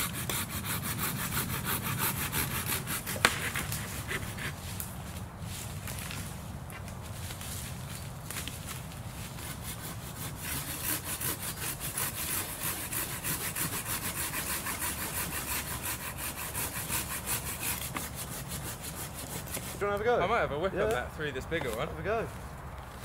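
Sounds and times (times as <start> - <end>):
hand saw cutting branch: 0.0 - 4.9, 8.6 - 20.2.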